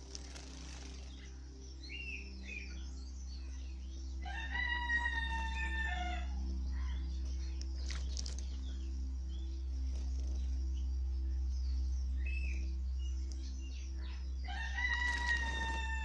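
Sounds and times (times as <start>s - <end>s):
rooster crowing: 14.5s - 16.0s.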